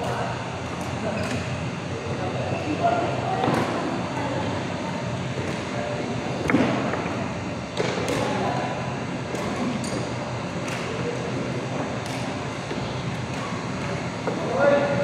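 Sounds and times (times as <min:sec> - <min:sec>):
large hall noise: 0:00.0 - 0:15.0
rackets striking shuttlecock: 0:07.7 - 0:08.4, 0:09.2 - 0:11.1, 0:12.0 - 0:14.3.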